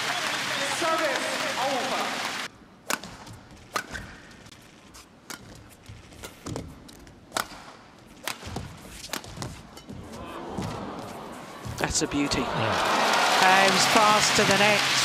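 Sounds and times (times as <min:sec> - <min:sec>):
rackets hitting shuttlecock: 0:02.8 - 0:04.3, 0:07.3 - 0:10.0.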